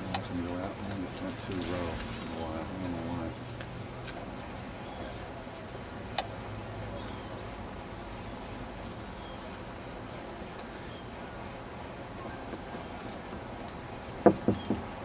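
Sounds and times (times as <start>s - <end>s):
background hiss: 0.0s - 15.0s.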